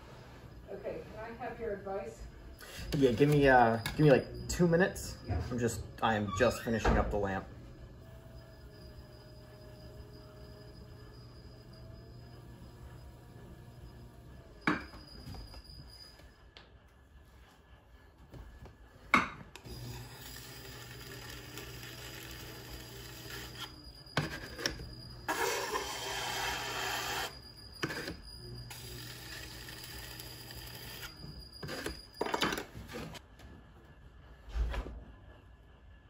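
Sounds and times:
potter's wheel humming: 0:00.0 - 0:16.2, 0:18.9 - 0:33.2
tool scraping clay: 0:20.7 - 0:28.2.

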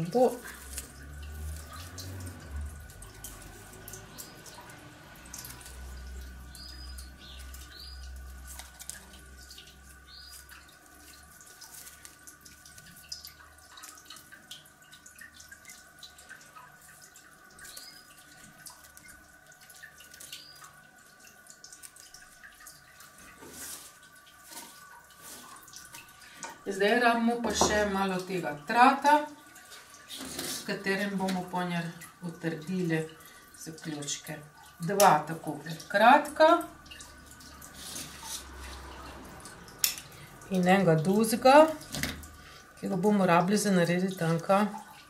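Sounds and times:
leafy twigs rustling: 0:00.0 - 0:14.3.

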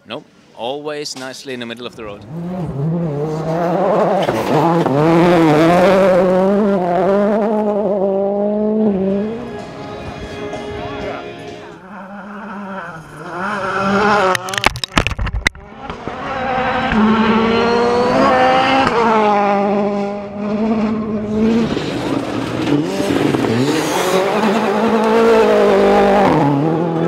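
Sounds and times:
rally car engines revving: 0:01.9 - 0:14.7, 0:15.6 - 0:27.0
car sliding on gravel: 0:21.3 - 0:25.7.

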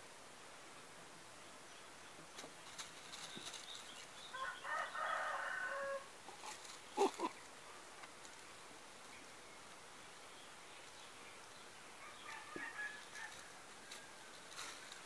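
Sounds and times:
kittens rustling on plastic sheet: 0:02.4 - 0:04.0, 0:13.2 - 0:15.0
rooster crowing: 0:04.3 - 0:06.1, 0:12.0 - 0:14.3.

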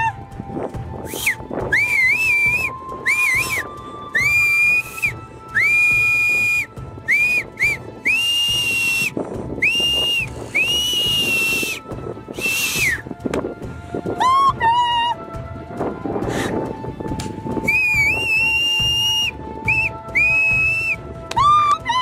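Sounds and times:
loud high whistled notes: 0:01.0 - 0:13.1, 0:17.5 - 0:22.0.

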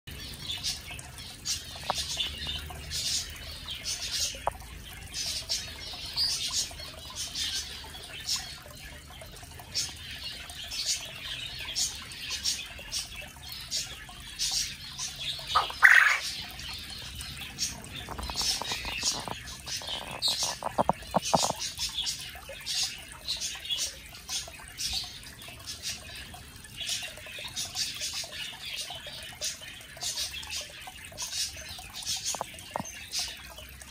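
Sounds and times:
high bird chirps: 0:15.1 - 0:22.2
quail crowing: 0:15.6 - 0:16.2.

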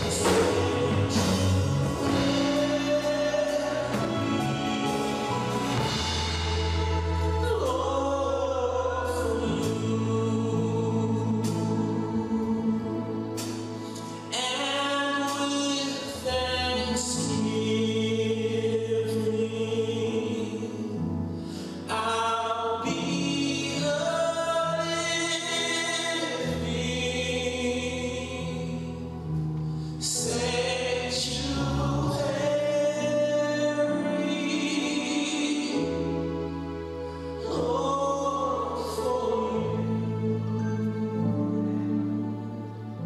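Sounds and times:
group singing worship song: 0:00.0 - 0:13.5.

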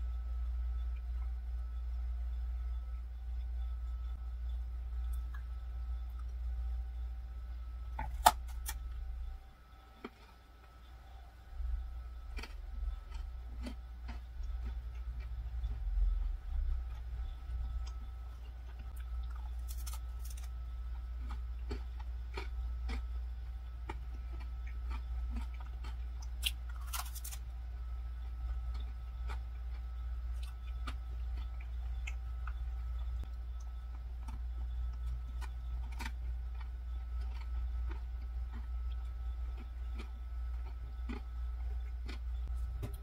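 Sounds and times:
chewing crisp macaron: 0:11.6 - 0:42.7
crisp bites: 0:19.2 - 0:20.6, 0:24.9 - 0:27.4.

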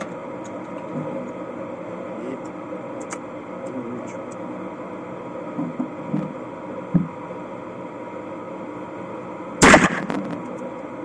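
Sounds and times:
shotgun shot: 0:09.6 - 0:10.4.

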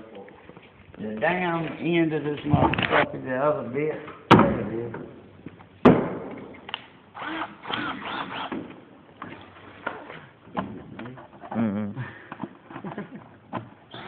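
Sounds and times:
short high squeaks: 0:07.2 - 0:08.6.

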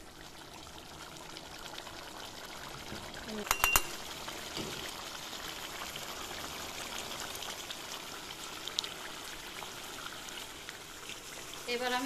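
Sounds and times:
curry bubbling in a pan: 0:00.0 - 0:12.0.

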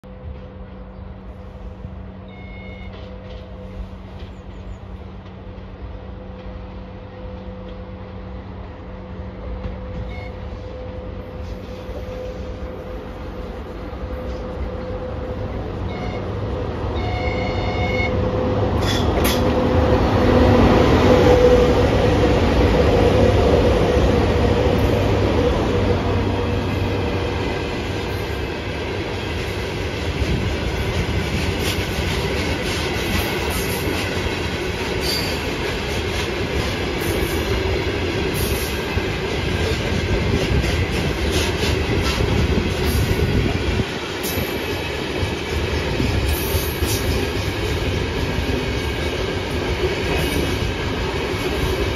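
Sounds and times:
train rumbling past: 0:00.0 - 0:51.9
locomotive whistle: 0:02.2 - 0:03.1, 0:09.8 - 0:12.5, 0:15.8 - 0:18.3.

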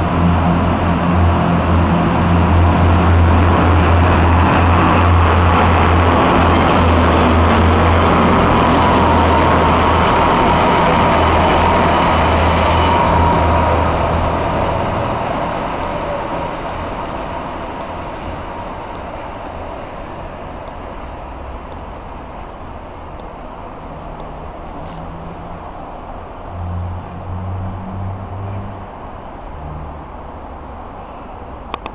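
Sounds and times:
diesel engine humming: 0:00.0 - 0:31.7
train wheels running on rails: 0:00.0 - 0:31.9
high ringing wheel squeal: 0:06.6 - 0:15.2.

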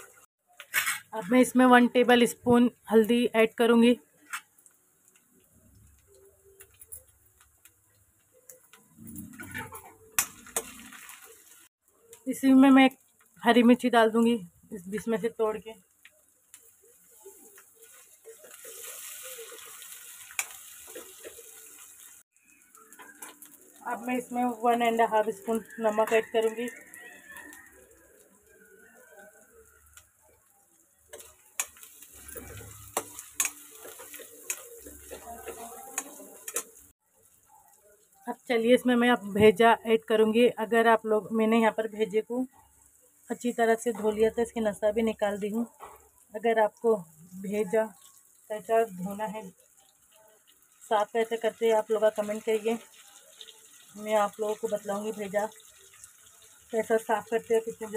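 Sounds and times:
onions frying in oil: 0:00.0 - 0:57.9
spatula scraping a pan: 0:00.6 - 0:01.3, 0:16.9 - 0:21.9, 0:31.1 - 0:36.8.

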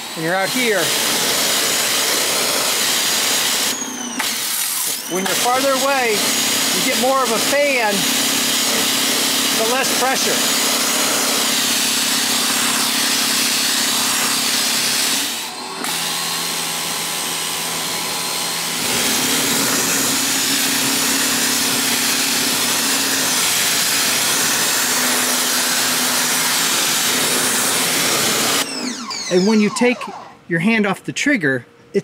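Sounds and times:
pressure washer motor humming: 0:00.0 - 0:30.4.

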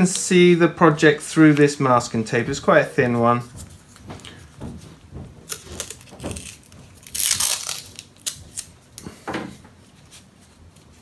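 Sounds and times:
tape scraping rustle: 0:02.8 - 0:08.8.

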